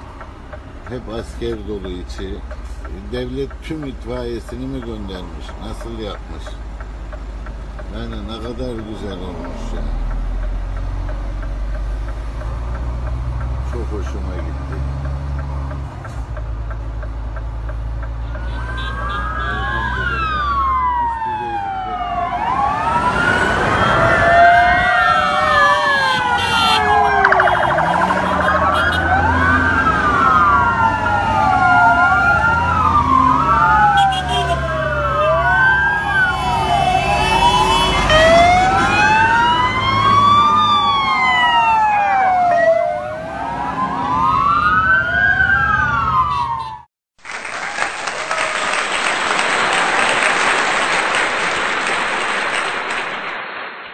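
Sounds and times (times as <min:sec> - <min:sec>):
low engine rumble: 0:00.0 - 0:22.8
fire engine sirens wailing: 0:00.0 - 0:46.9
applause: 0:47.2 - 0:53.8.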